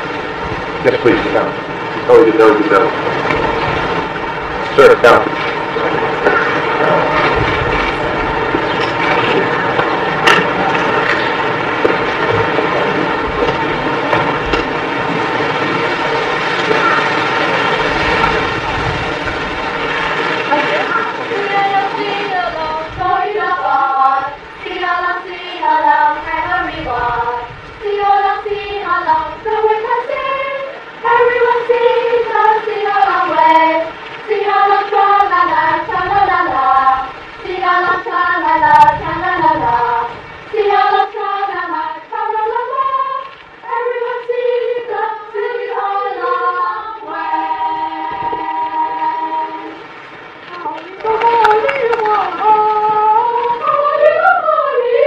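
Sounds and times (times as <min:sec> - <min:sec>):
children singing in unison: 0:20.6 - 0:49.9, 0:50.5 - 0:55.0.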